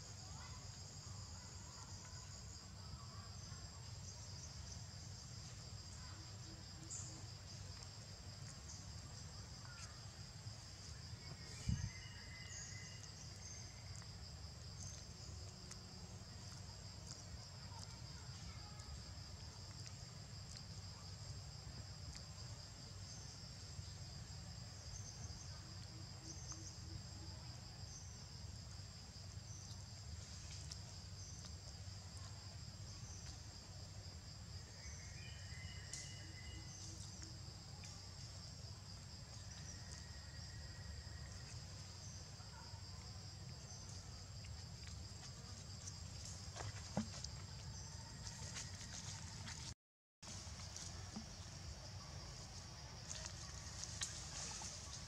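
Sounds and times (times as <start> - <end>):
insect chorus drone: 0.0 - 55.0.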